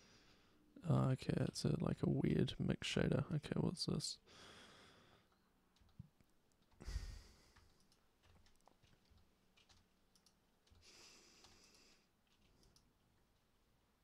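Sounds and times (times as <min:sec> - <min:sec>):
breath into microphone: 0:06.8 - 0:07.6
faint computer clicks: 0:07.5 - 0:12.9.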